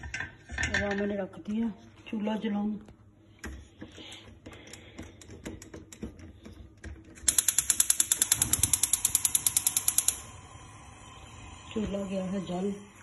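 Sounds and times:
gas hob spark igniter clicking: 7.2 - 10.4.

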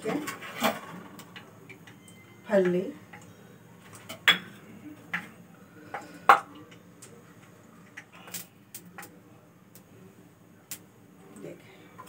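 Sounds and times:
metal kitchenware clinking: 4.0 - 4.6.

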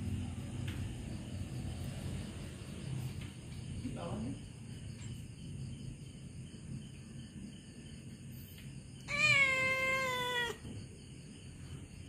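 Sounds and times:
cat meowing: 9.0 - 10.7.

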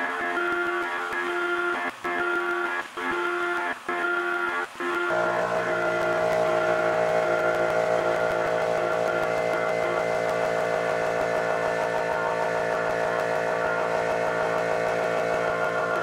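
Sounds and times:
milling machine spindle whine: 3.2 - 16.0.

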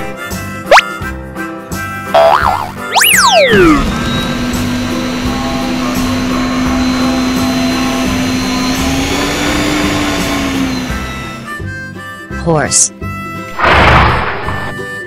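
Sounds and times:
stand mixer motor whirring: 3.4 - 11.6.

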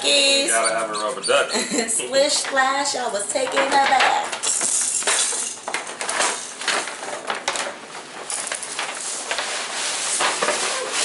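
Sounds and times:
paper bags and tissue rustling: 3.8 - 11.0.

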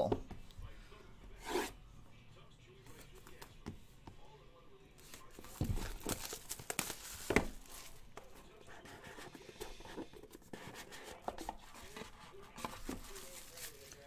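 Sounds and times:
shrink wrap crinkling and tearing: 5.0 - 8.0, 12.5 - 14.0.

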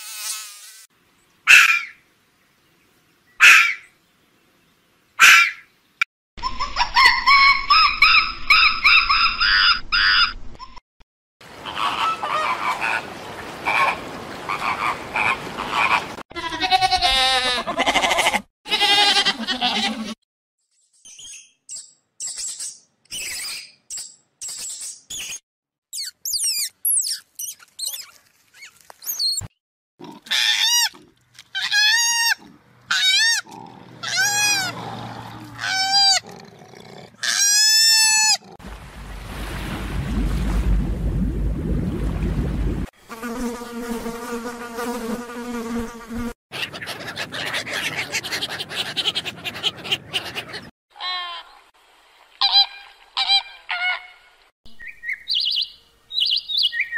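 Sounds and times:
short chirps and squeaks: 21.0 - 29.6
loud squeaky calls: 26.0 - 29.5, 31.5 - 34.8
flamingos honking and chattering: 46.5 - 51.1.

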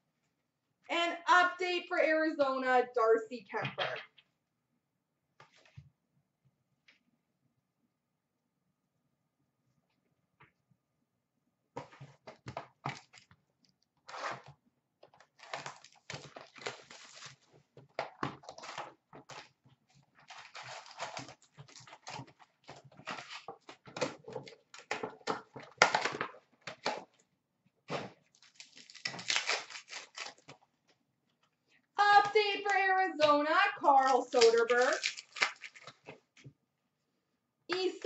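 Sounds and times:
rustling and crinkling packs: 11.8 - 13.3, 14.0 - 27.2, 27.9 - 30.7, 32.0 - 36.5.

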